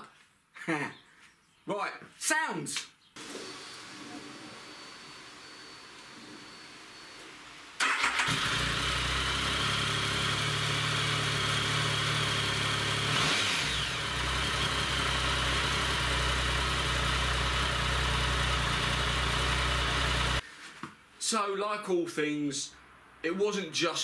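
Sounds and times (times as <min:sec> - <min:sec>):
motorcycle engine idling: 0:08.1 - 0:13.1, 0:13.7 - 0:20.4.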